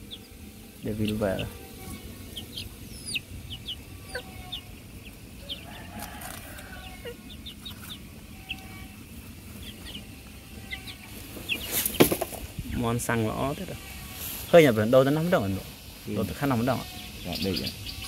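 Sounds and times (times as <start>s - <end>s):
high peeping calls: 0.0s - 18.0s.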